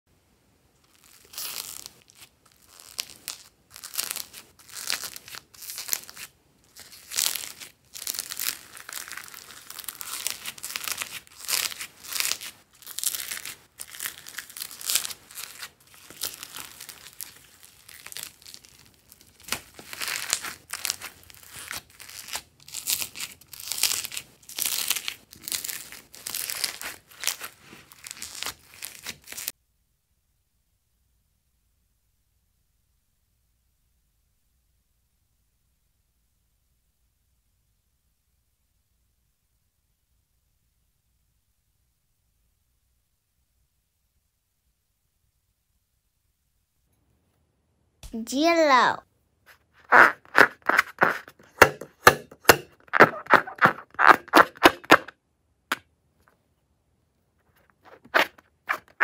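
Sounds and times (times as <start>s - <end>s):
crunchy slime crackling: 0.9s - 29.5s, 49.9s - 55.1s.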